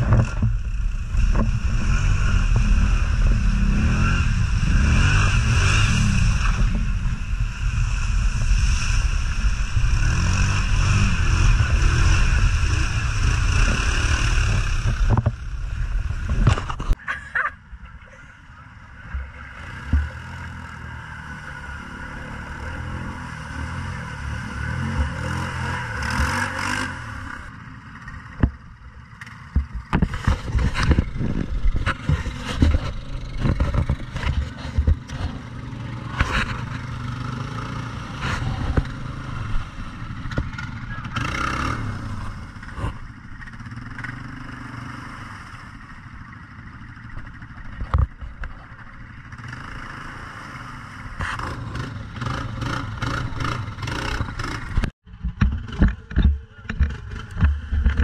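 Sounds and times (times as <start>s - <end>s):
atv engines revving: 0.0s - 58.0s
sharp knocks and clatters: 29.2s - 35.5s, 52.6s - 58.0s.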